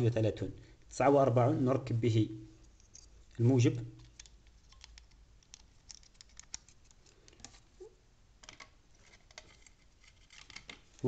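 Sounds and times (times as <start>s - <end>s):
faint clicks and taps: 4.0s - 7.6s.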